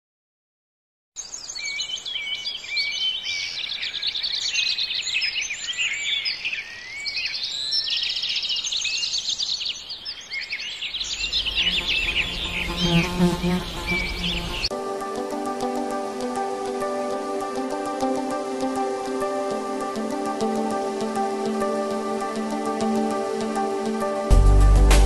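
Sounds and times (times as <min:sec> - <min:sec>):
songbirds chorus: 0:01.2 - 0:14.7.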